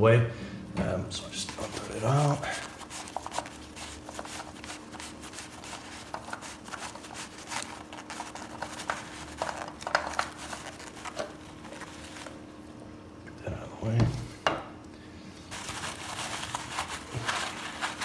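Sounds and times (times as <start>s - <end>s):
faint steady hum: 0.0s - 18.0s
paper rags crinkling: 1.2s - 12.4s, 15.5s - 18.0s
glove rubbing on oil filter: 1.3s - 12.4s, 15.5s - 18.0s.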